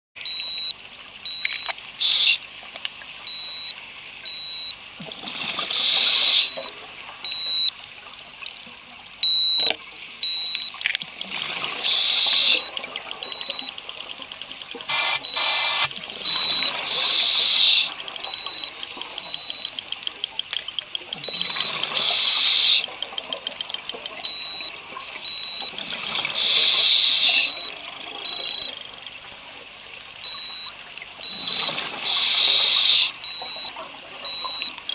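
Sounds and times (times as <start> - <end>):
high electronic beep: 6.2 - 6.7, 7.3 - 7.7, 9.2 - 10.7, 12.4 - 13.7, 14.9 - 19.8, 24.2 - 25.7, 27.4 - 28.8, 30.2 - 31.8, 32.4 - 34.9.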